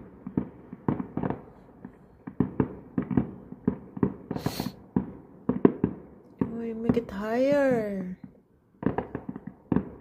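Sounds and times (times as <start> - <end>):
distant firework bangs: 0.0 - 10.0
firework hiss: 4.3 - 4.9.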